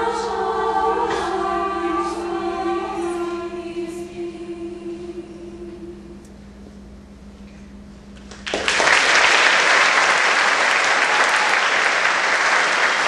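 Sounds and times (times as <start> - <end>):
choir holding a note: 0.0 - 6.3
audience applause: 8.3 - 13.0.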